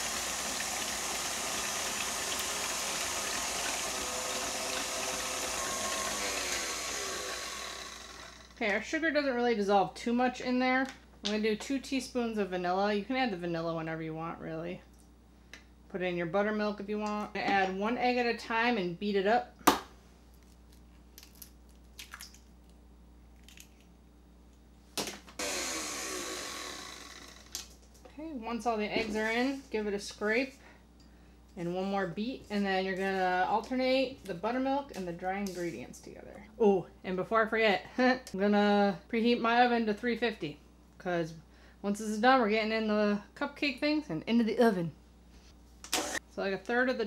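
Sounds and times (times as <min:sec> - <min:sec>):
stand mixer motor whirring: 0:00.0 - 0:08.6, 0:25.4 - 0:27.5.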